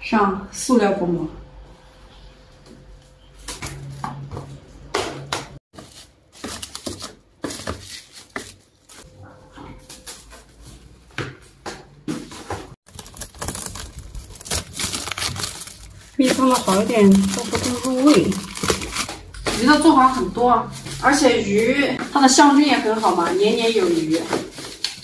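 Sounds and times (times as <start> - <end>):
cling film crinkling: 12.9 - 19.3.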